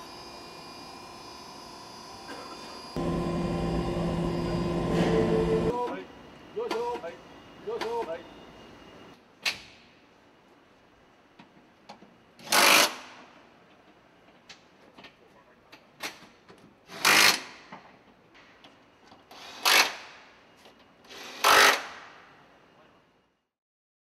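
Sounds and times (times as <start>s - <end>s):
power tool driving bolts: 12.4s - 13.1s, 21.1s - 22.0s.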